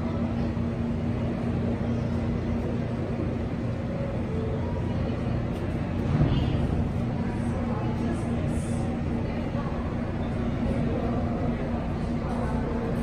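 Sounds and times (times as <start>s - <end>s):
subway station rumble: 0.0s - 13.0s.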